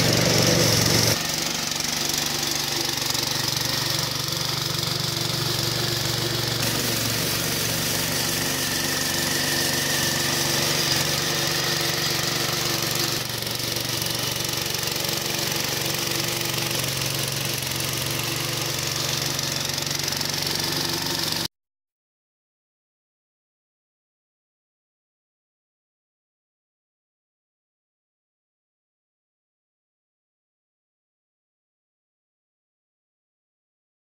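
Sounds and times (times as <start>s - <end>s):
rotary brush hissing on concrete: 0.0s - 21.5s
small petrol engine running: 0.0s - 21.5s.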